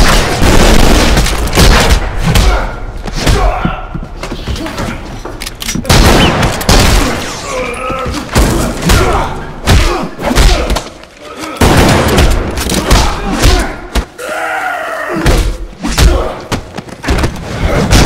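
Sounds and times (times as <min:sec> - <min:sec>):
men grunting and groaning: 0:06.9 - 0:11.8, 0:12.6 - 0:16.6.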